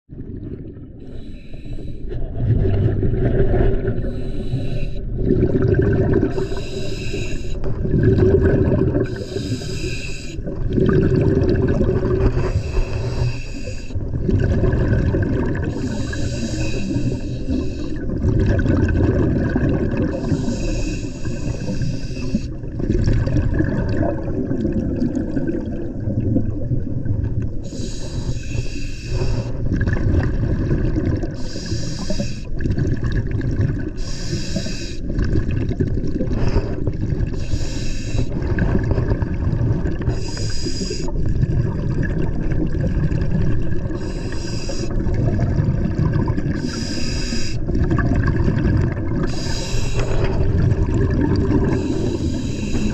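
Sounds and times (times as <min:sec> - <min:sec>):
exhaled bubbles underwater: 0:00.1 - 0:52.9
regulator hissing inhalation: 0:01.0 - 0:02.1, 0:04.0 - 0:05.0, 0:06.3 - 0:07.7, 0:09.0 - 0:10.4, 0:12.4 - 0:14.0, 0:15.7 - 0:18.0, 0:20.2 - 0:22.6, 0:27.6 - 0:29.6, 0:31.4 - 0:32.6, 0:34.0 - 0:35.1, 0:36.4 - 0:38.4, 0:40.1 - 0:41.1, 0:44.0 - 0:45.0, 0:46.5 - 0:47.7, 0:49.2 - 0:50.4, 0:51.6 - 0:52.9.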